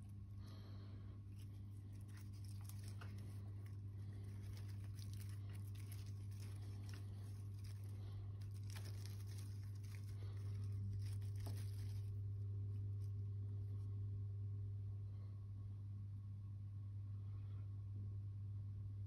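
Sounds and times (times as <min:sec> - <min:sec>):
leaves rustling: 0:00.0 - 0:12.2
steady low hum: 0:00.0 - 0:19.0.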